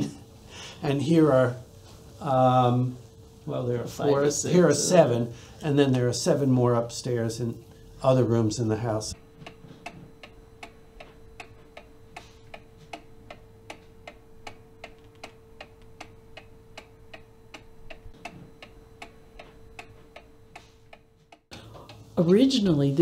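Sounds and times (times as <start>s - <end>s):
faint steady hum: 0.0s - 23.0s
mechanical clock ticking: 9.1s - 22.8s.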